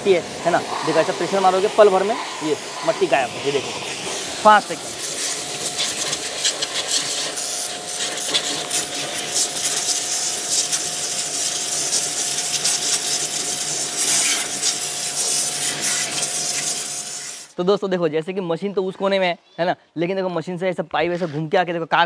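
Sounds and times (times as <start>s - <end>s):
thin whine: 0.0s - 13.0s
pressure washer spraying: 0.0s - 17.6s.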